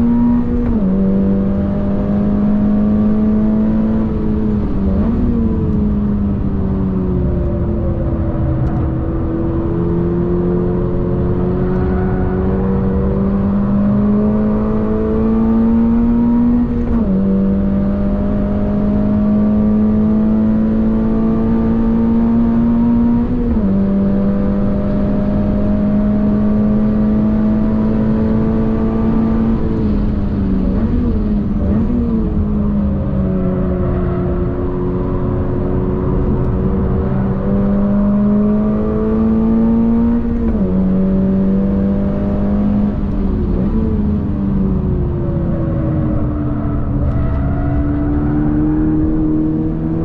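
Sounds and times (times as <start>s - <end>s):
car engine accelerating hard: 0.0s - 50.0s.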